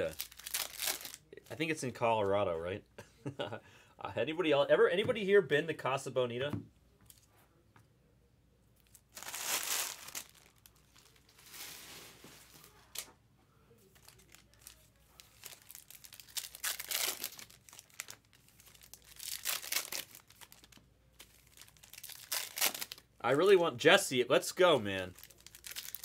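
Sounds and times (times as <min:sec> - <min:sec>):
card wrappers tearing and crinkling: 0:00.0 - 0:01.3, 0:08.9 - 0:12.0, 0:14.0 - 0:23.6, 0:24.6 - 0:26.0.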